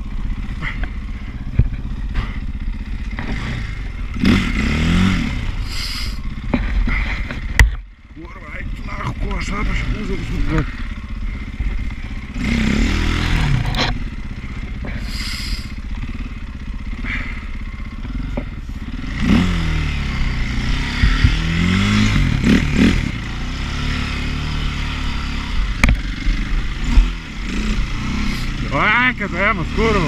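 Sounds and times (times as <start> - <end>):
dirt bike engine revving: 0.0 - 30.0
clattering and scraping: 13.5 - 14.0.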